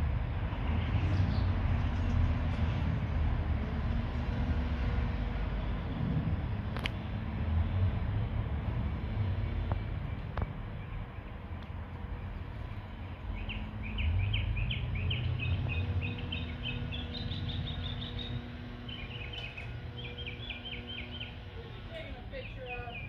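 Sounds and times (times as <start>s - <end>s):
songbird chirping: 9.4s - 23.0s.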